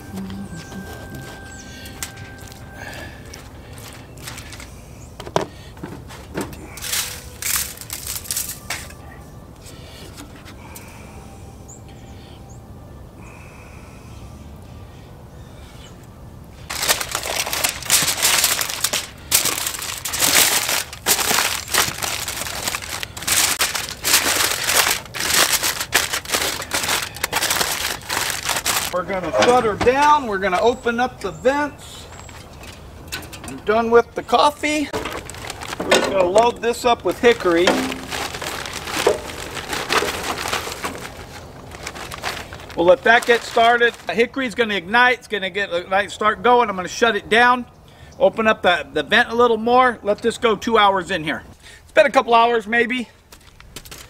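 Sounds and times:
aluminium foil crinkling: 0.0s - 4.8s, 6.1s - 9.0s, 16.6s - 29.0s, 34.5s - 44.3s.

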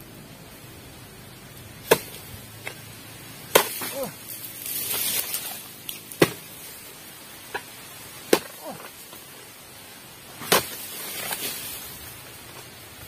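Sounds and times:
palm fronds rustling: 0.0s - 13.0s
blade cutting palm stalks: 1.8s - 2.8s, 3.4s - 9.3s, 10.3s - 12.0s.

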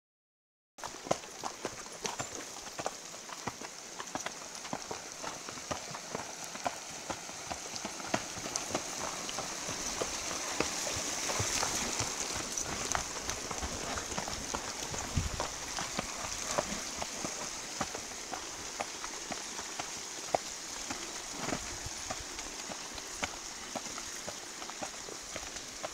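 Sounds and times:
hooves on loose stone: 0.8s - 25.9s.

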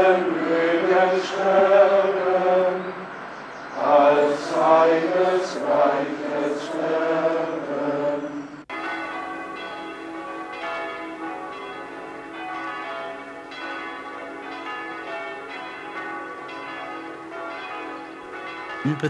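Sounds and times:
group chanting: 0.0s - 3.0s, 3.8s - 8.5s
church bells pealing: 8.7s - 19.0s.

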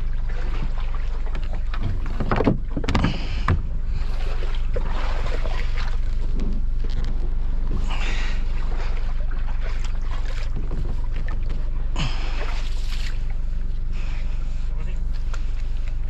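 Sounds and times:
steady low hum: 0.0s - 16.0s
boat hull knocking: 0.6s - 3.8s.

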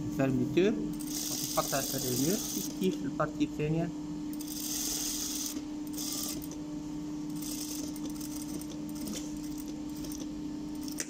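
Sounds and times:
sewing machine motor hum: 0.6s - 3.0s, 3.7s - 11.0s
sewing machine stitching: 1.0s - 2.8s, 4.4s - 6.6s, 7.4s - 11.0s.

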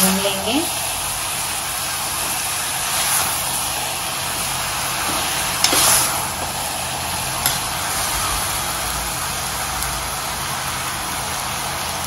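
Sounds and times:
beans sizzling in oil: 0.0s - 12.0s
metal spoon stirring: 5.0s - 6.1s, 7.4s - 7.8s.

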